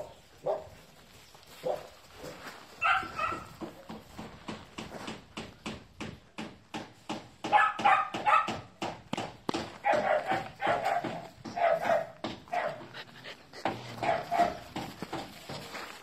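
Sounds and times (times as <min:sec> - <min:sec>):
dogs barking and yipping: 0:00.0 - 0:00.8, 0:01.5 - 0:04.0, 0:07.4 - 0:08.8, 0:09.6 - 0:15.7.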